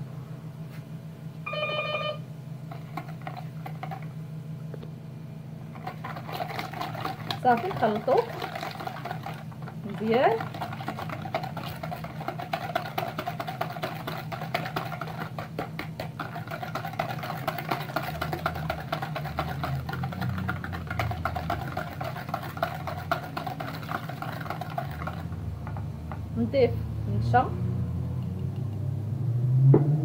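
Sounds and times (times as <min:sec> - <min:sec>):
whisk clicking against bowl: 0:05.8 - 0:26.3.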